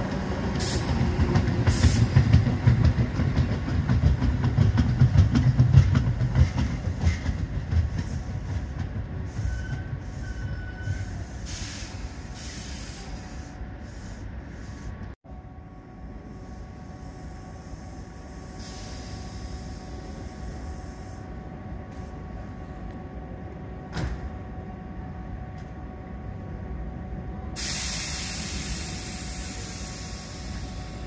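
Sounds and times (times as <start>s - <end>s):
electric train humming: 0.0s - 31.0s
loud hiss of released air: 10.9s - 15.0s, 17.0s - 21.2s, 27.6s - 31.0s.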